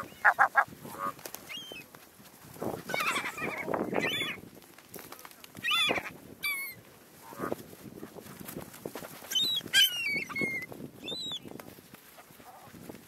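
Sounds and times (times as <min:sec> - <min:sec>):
gulls calling: 0:09.3 - 0:11.5.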